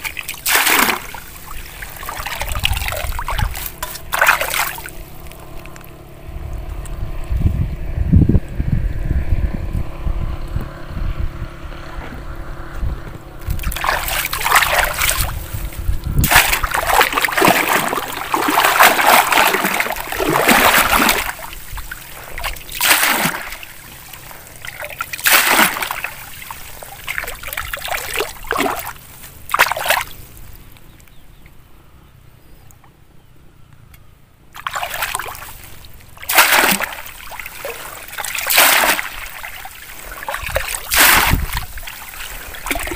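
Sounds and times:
water streaming through net: 0:00.0 - 0:06.7, 0:13.4 - 0:30.4, 0:34.6 - 0:42.9
water splashing and sloshing: 0:00.0 - 0:07.0, 0:13.4 - 0:31.1, 0:34.5 - 0:42.9.

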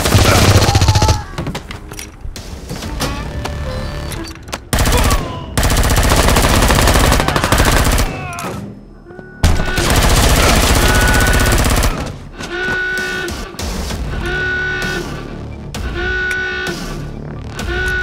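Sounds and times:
automatic gunfire bursts: 0:04.8 - 0:08.2, 0:09.5 - 0:12.1.

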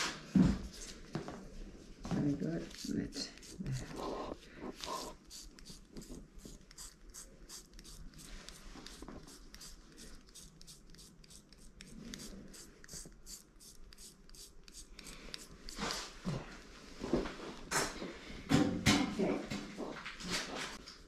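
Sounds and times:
razor scraping skin: 0:02.4 - 0:15.9.

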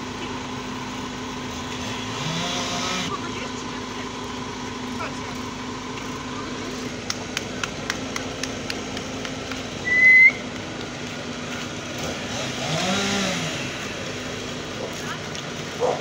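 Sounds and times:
engine and hydraulics humming: 0:00.0 - 0:16.0
short loud whistle: 0:09.8 - 0:10.4.

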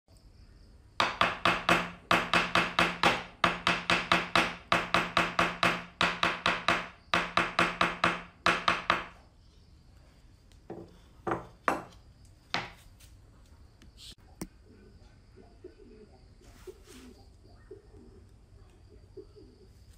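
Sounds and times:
hammer tapping on wood: 0:10.7 - 0:12.8
wooden knocks: 0:10.7 - 0:12.8.

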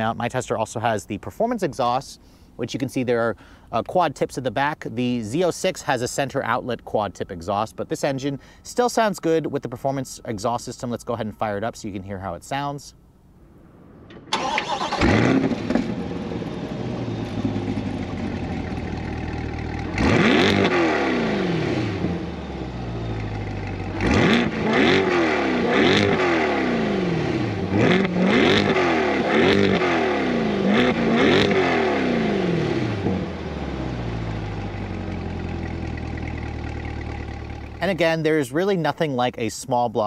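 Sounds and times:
car engine idling: 0:13.0 - 0:38.2
car engine starting: 0:13.2 - 0:38.2
car engine revving: 0:14.0 - 0:38.0.

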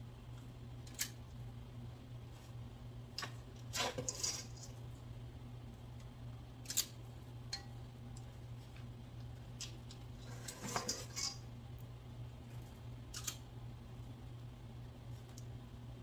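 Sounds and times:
metal scoop scraping a bowl: 0:03.7 - 0:04.8, 0:10.2 - 0:11.4.

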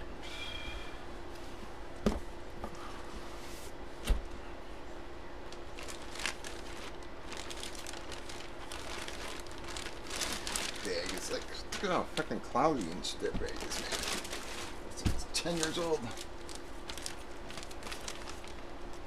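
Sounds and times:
steady low hum: 0:00.0 - 0:19.0
plastic bag crinkling: 0:05.5 - 0:19.0.

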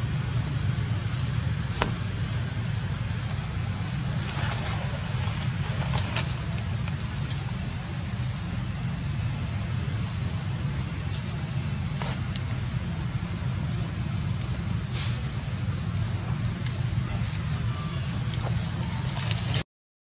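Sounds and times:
low outdoor rumble: 0:00.0 - 0:19.6
faint high chirps: 0:17.7 - 0:19.2.

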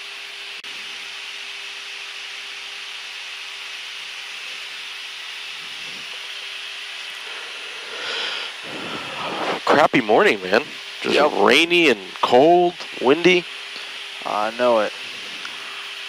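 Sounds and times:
steady low hum: 0:00.5 - 0:16.0
jet cockpit rushing hiss: 0:05.4 - 0:16.0.

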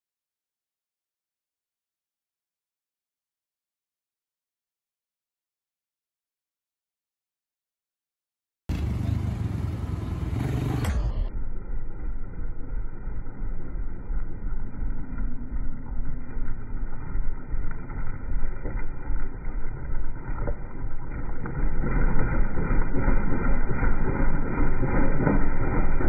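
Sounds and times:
motorcycle engine rumbling: 0:08.7 - 0:26.0.

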